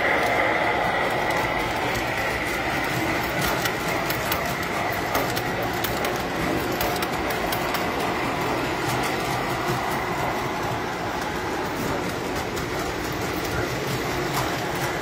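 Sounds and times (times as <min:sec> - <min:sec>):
rapid clicking over rail joints: 0:00.0 - 0:15.0
toy train rumbling: 0:00.0 - 0:15.0.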